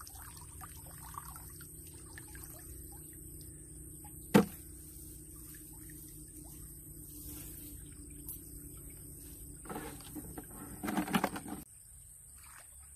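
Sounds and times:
small water splashes: 0:00.0 - 0:03.5
water trickling and dripping: 0:00.0 - 0:04.2.

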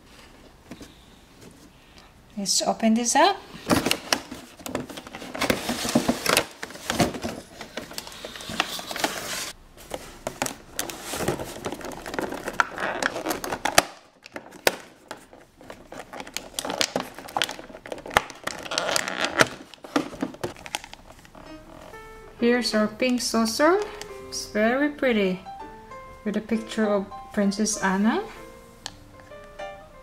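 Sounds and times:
plastic packaging crinkling: 0:03.6 - 0:22.0.

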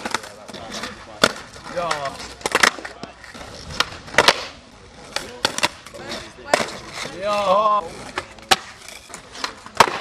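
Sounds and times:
skateboard clacking on pavement: 0:00.0 - 0:10.0
skateboard wheels rolling: 0:00.0 - 0:10.0
skateboard tail pop: 0:03.7 - 0:04.6, 0:09.4 - 0:10.0.

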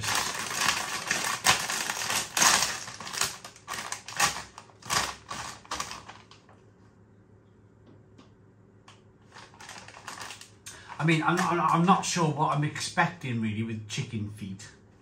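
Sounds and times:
crisp packet crinkling: 0:00.0 - 0:06.5, 0:09.3 - 0:12.2.

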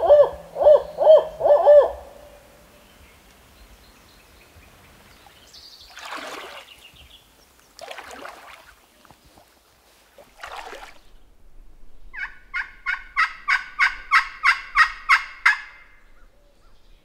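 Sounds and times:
turkey call hen yelps: 0:00.0 - 0:02.2, 0:12.2 - 0:15.9.

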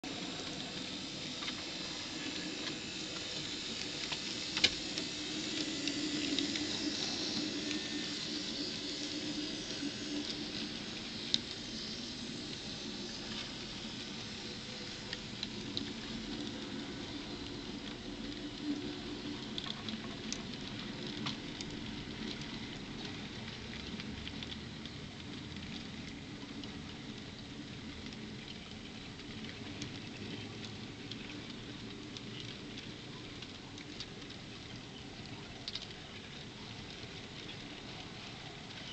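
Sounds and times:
locomotive motors humming: 0:00.1 - 0:20.4.

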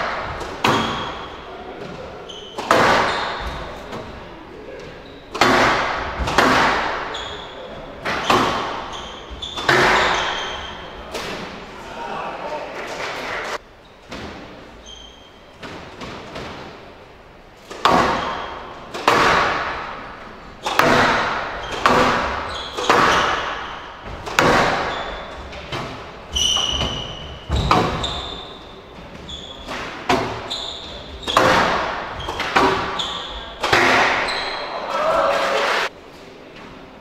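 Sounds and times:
squash ball smacking walls: 0:00.0 - 0:01.4, 0:02.6 - 0:04.2, 0:05.3 - 0:07.2, 0:08.0 - 0:11.6, 0:17.6 - 0:34.5
shoe squeaks: 0:00.6 - 0:04.0, 0:04.7 - 0:05.5, 0:06.9 - 0:11.1, 0:14.8 - 0:15.6, 0:18.1 - 0:18.9, 0:21.5 - 0:34.9.

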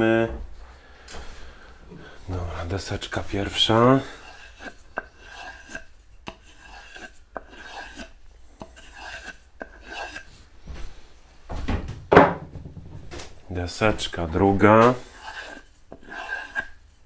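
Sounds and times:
knife cutting into wooden board: 0:04.5 - 0:10.3.

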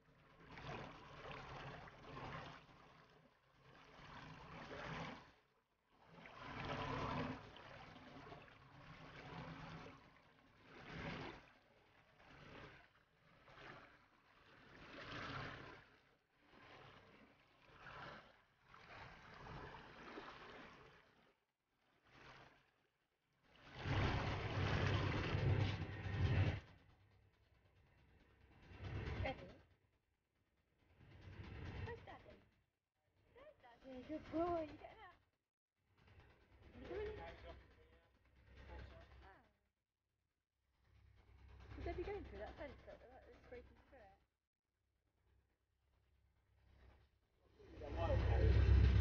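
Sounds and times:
water lapping against boat hull: 0:00.1 - 0:27.4, 0:28.0 - 0:29.7, 0:30.9 - 0:32.5, 0:33.4 - 0:35.1, 0:36.2 - 0:39.5, 0:46.5 - 0:49.0.

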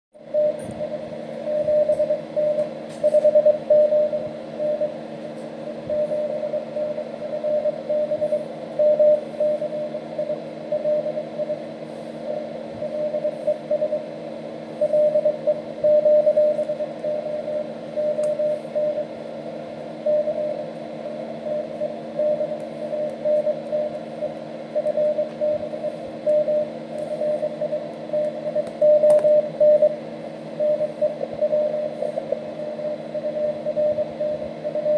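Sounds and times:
morse code tone: 0:00.2 - 0:05.0, 0:05.6 - 0:14.2, 0:14.8 - 0:19.1, 0:20.0 - 0:30.0, 0:30.6 - 0:34.9
radio hiss: 0:30.8 - 0:33.1.

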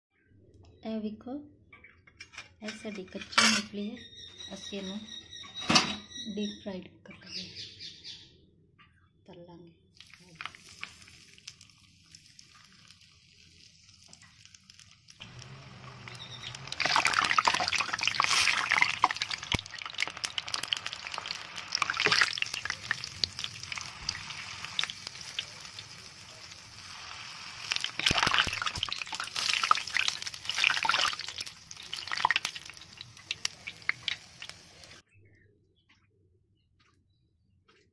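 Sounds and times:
oil sizzling and crackling: 0:10.0 - 0:35.0.

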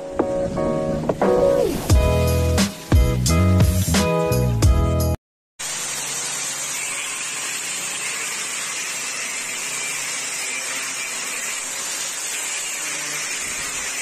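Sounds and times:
steady hiss: 0:01.8 - 0:04.1.

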